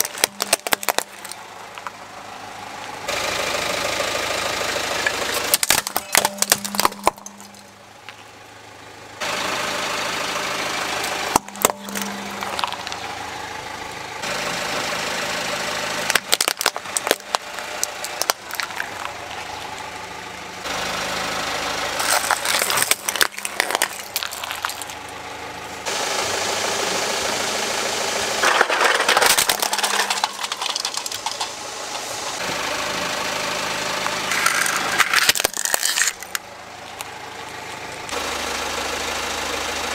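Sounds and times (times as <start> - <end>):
plastic toys crushed under tyre: 0.0 - 2.0, 5.0 - 8.2, 11.0 - 13.2, 16.0 - 19.9, 22.0 - 25.2, 28.4 - 32.4, 34.0 - 36.4
car engine running: 0.0 - 39.9.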